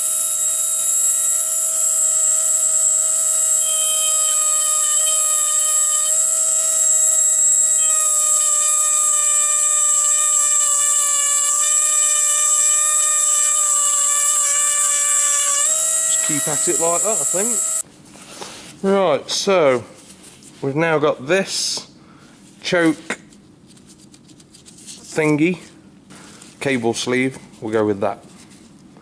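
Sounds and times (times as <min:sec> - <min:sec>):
die grinder whining: 0:00.0 - 0:17.8.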